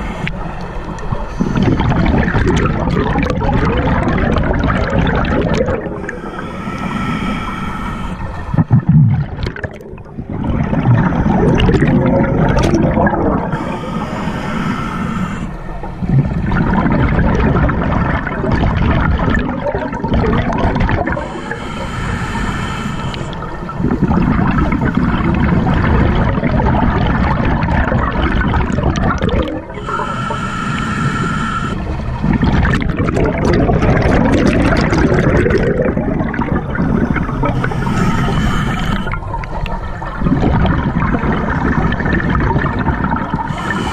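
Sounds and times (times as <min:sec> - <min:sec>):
hissing regulator inhalation: 0:00.0 - 0:02.0, 0:05.5 - 0:08.7, 0:13.3 - 0:15.9, 0:21.0 - 0:25.0, 0:29.3 - 0:32.4, 0:36.7 - 0:39.5, 0:43.3 - 0:43.9
gurgling exhaled bubbles: 0:00.0 - 0:43.9.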